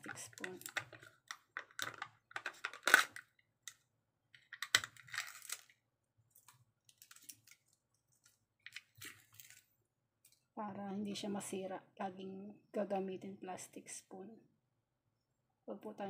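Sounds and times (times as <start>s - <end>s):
foil seal crinkling and tearing: 0.1s - 3.3s, 4.5s - 9.7s.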